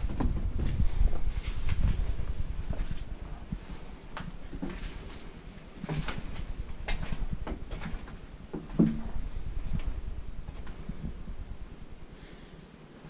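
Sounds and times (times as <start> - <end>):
footsteps crunching on debris: 0.0 - 3.1, 4.1 - 11.2
wind rumble on microphone: 0.0 - 12.2.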